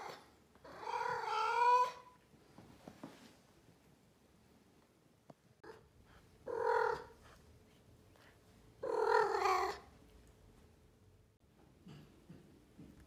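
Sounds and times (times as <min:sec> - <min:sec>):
cat calling: 0:06.5 - 0:07.1, 0:08.8 - 0:09.8.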